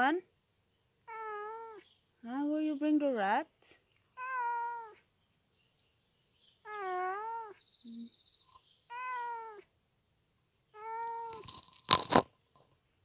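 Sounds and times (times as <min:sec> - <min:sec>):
cat meowing: 0:01.1 - 0:01.8, 0:04.2 - 0:05.0, 0:06.7 - 0:07.6, 0:08.9 - 0:09.6, 0:10.8 - 0:11.4.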